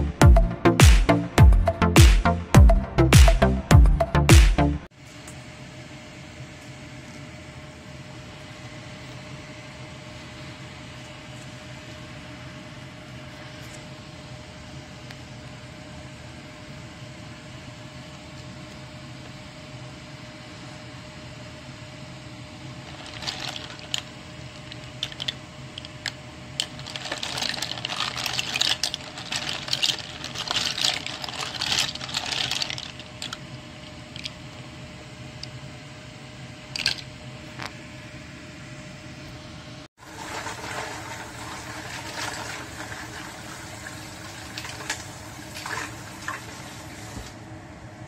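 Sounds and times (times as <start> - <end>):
steady low hum: 0.0 - 39.9
clam shells clattering in water: 22.9 - 24.0, 24.6 - 25.9, 26.6 - 33.4, 36.8 - 37.0.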